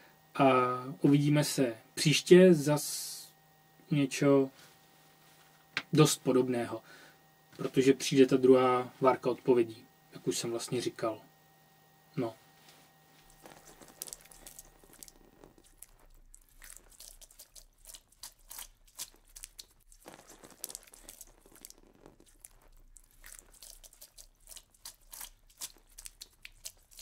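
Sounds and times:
low steady hum: 0.0 - 27.0
crackling and crunching clicks: 13.2 - 27.0.

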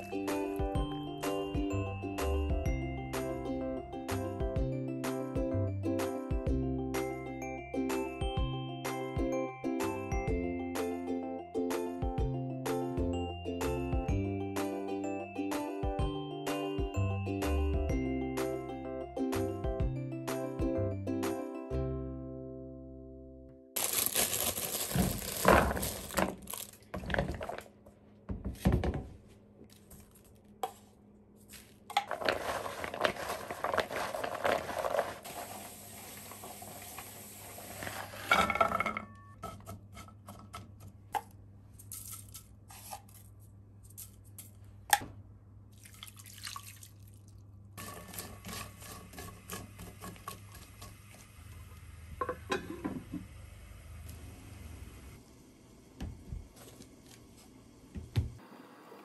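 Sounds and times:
rustling: 23.8 - 28.1, 29.3 - 35.6.

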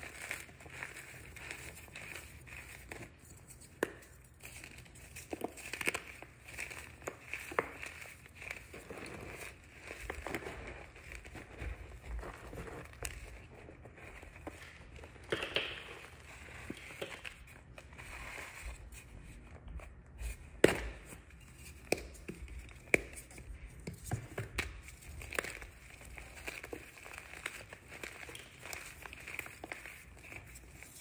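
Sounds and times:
chalk crunching and rubbing: 0.0 - 15.0.

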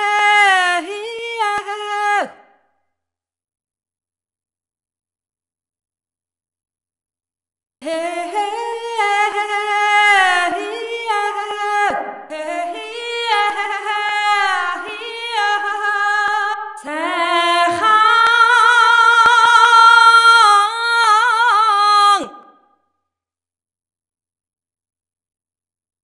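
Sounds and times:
woman singing a cappella: 0.0 - 2.4, 7.8 - 22.5.

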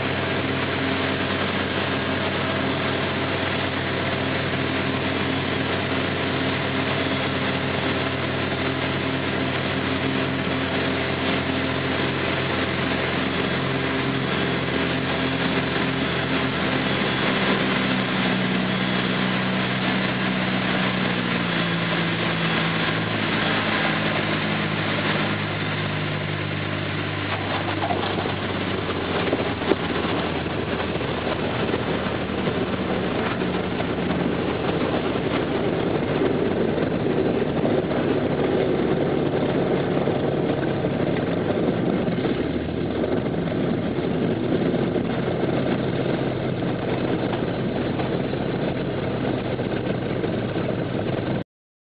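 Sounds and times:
aircraft engine running: 0.0 - 51.4
rush of noise: 0.0 - 51.4.

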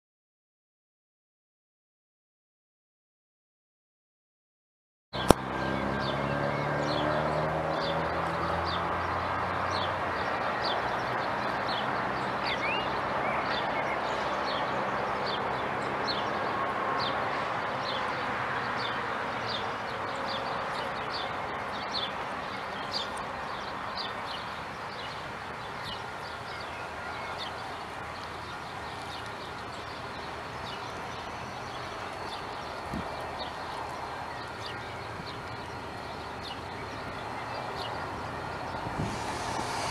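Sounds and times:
low engine hum: 5.2 - 13.4, 26.7 - 39.9
steady outdoor hiss: 5.2 - 39.9.

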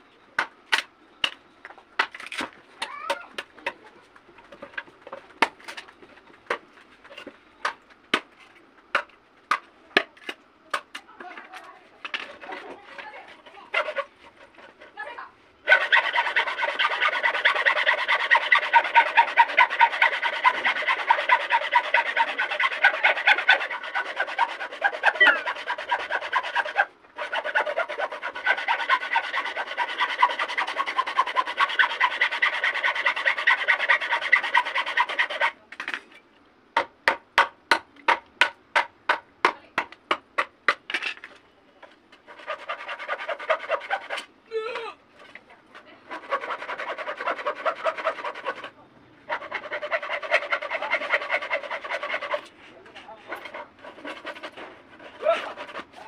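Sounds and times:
hacksaw rasping through bamboo: 12.1 - 35.6, 42.3 - 44.3, 45.2 - 56.0.

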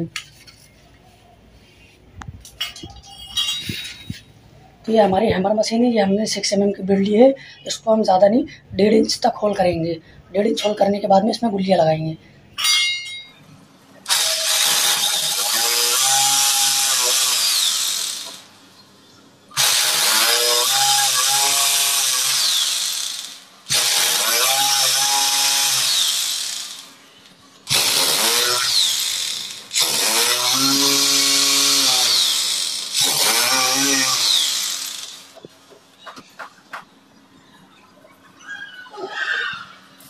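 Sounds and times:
hammer drill boring into wall: 14.1 - 18.5, 19.6 - 26.9, 27.7 - 35.4.

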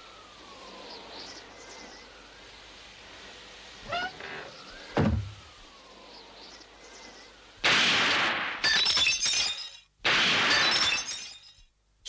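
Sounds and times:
gunshot bursts: 7.6 - 9.2, 10.0 - 11.1
glass bottles shattering: 10.5 - 11.6
tinkling glass shards: 10.8 - 11.7.

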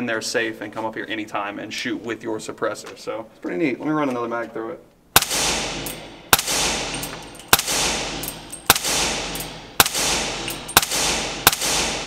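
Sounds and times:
suppressed gunshots with echo: 5.2 - 12.0.

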